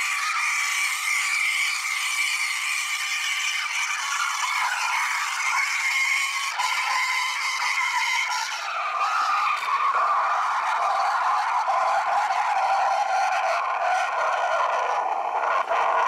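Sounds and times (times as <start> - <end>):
steam wand frothing milk: 0.0 - 16.0.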